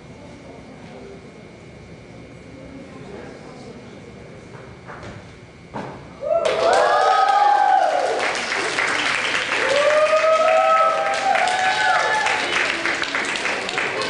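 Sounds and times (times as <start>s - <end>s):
thump: 4.9s - 6.0s
whoops: 6.2s - 8.4s, 9.5s - 12.6s
audience applause and cheering: 6.2s - 14.0s.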